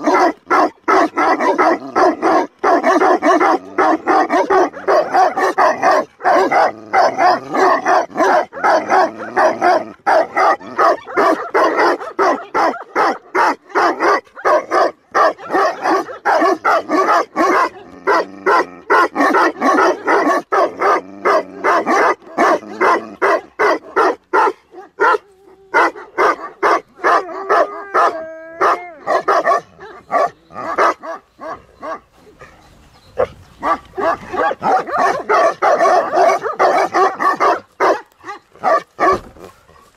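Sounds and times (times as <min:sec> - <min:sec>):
dogs barking: 0:00.0 - 0:39.9
dog crying: 0:27.1 - 0:30.9.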